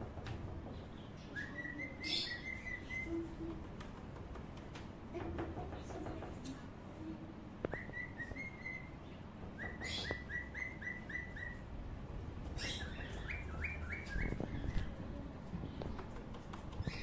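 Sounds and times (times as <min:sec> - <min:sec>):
bird chirping: 0:00.7 - 0:03.4, 0:07.7 - 0:11.7, 0:12.4 - 0:15.0, 0:16.7 - 0:17.0.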